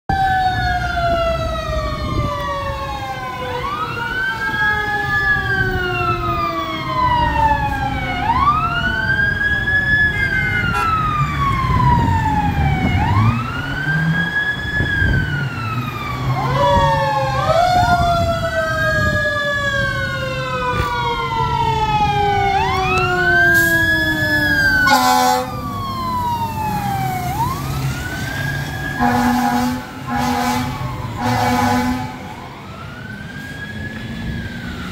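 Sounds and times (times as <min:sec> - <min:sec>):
fire engine siren wailing: 0:00.1 - 0:34.9
second siren tone sliding down: 0:00.1 - 0:34.9
diesel engine rumbling: 0:00.6 - 0:34.9
air horn blast: 0:10.7 - 0:11.0, 0:24.8 - 0:25.5, 0:29.0 - 0:32.3.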